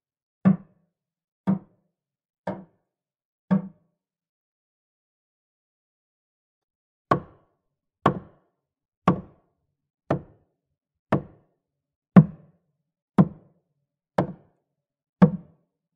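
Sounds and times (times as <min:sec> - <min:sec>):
hammer striking wood: 0:07.1 - 0:07.4, 0:08.1 - 0:08.3, 0:09.1 - 0:09.3, 0:10.1 - 0:10.3, 0:14.2 - 0:14.4.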